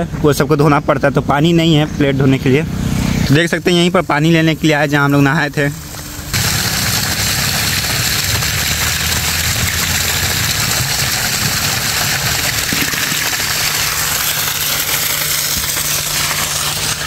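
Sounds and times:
water gushing onto rocks: 0:03.6 - 0:17.0
bottle filling with water: 0:04.2 - 0:17.0.

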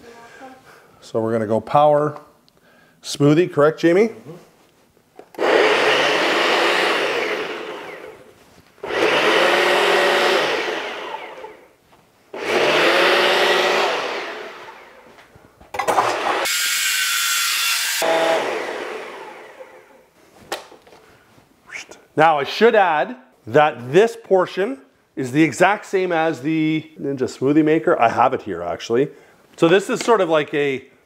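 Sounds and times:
blender motor running: 0:05.4 - 0:11.7, 0:12.4 - 0:15.1, 0:16.0 - 0:19.9.

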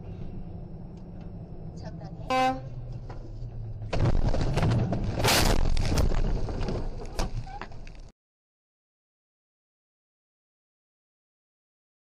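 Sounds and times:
truck crashing with bangs: 0:03.8 - 0:07.5.

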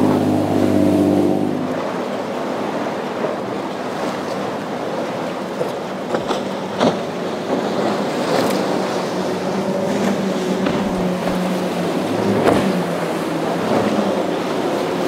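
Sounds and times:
faint boat engine: 0:00.0 - 0:15.0
waves washing: 0:00.0 - 0:15.0
wind buffeting microphone: 0:07.0 - 0:15.0.

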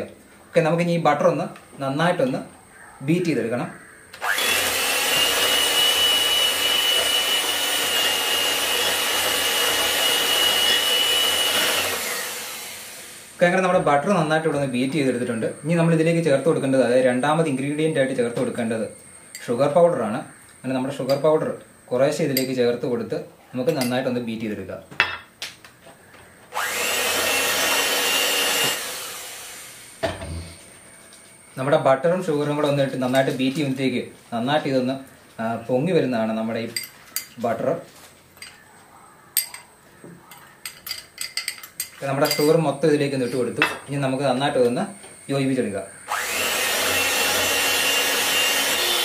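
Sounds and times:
electric hand mixer whine: 0:04.2 - 0:18.6, 0:26.5 - 0:30.6, 0:44.7 - 0:49.0.

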